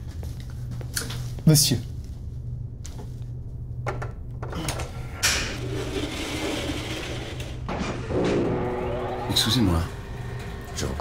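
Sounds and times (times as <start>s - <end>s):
lift machinery humming: 4.6s - 11.0s
mechanical whirr: 5.6s - 11.0s.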